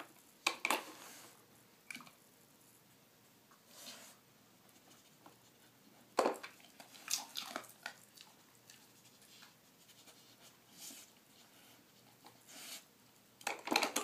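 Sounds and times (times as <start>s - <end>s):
small plastic clicks and knocks: 13.4s - 14.0s.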